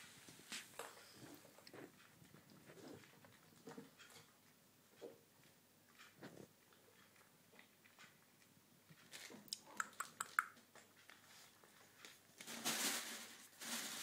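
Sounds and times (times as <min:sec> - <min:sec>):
rustling: 0:00.0 - 0:04.5, 0:10.7 - 0:14.0
kittens crunching dry food: 0:00.2 - 0:14.0.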